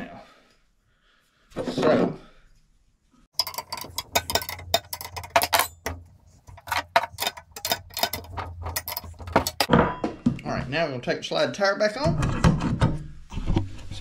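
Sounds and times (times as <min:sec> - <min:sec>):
wrenches clicking on metal bolt: 0:03.4 - 0:09.7.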